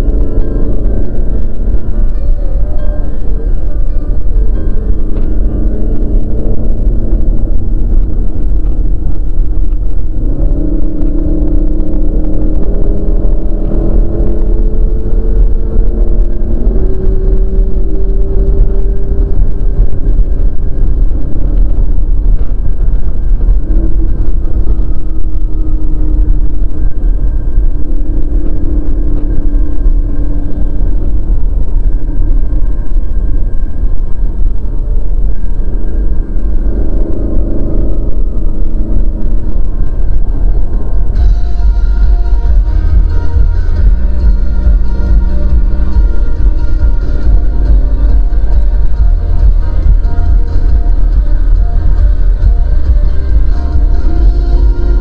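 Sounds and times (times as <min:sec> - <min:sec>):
car engine accelerating: 0:00.0 - 0:55.0
road rumble inside car: 0:00.0 - 0:55.0.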